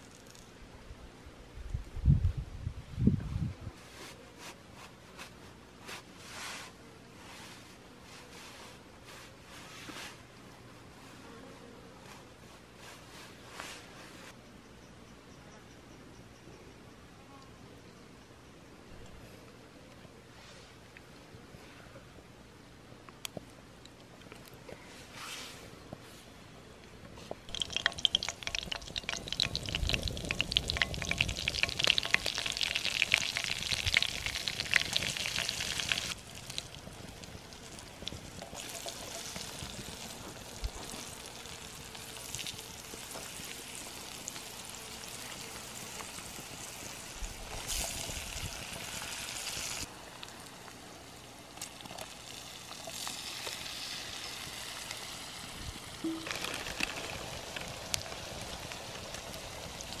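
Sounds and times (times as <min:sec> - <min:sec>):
vegetables sizzling in hot oil: 0:27.5 - 1:00.0.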